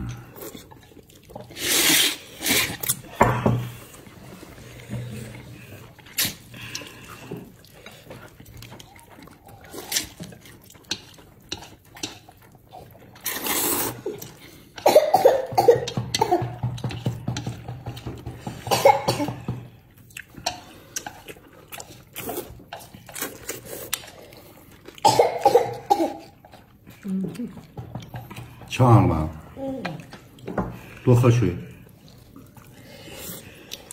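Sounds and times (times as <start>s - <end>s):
man slurping noodles: 1.4s - 3.1s, 13.2s - 14.2s.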